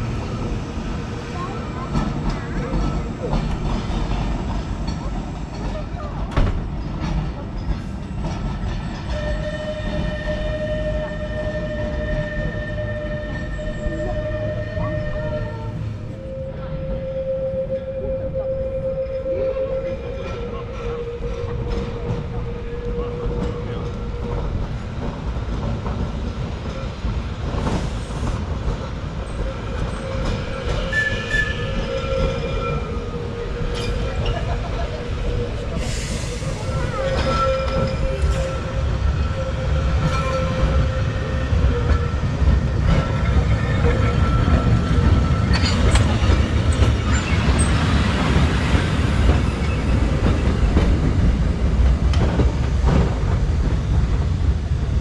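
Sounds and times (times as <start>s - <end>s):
tram rumbling: 0.0s - 55.0s
wheels clacking over rail joints: 36.4s - 55.0s.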